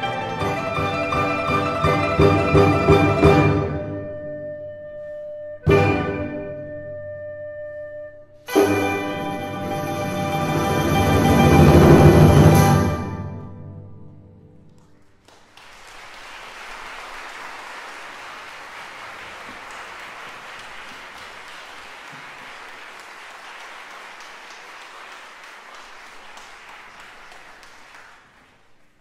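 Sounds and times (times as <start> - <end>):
audience applause: 0.0 - 2.4, 15.0 - 29.0.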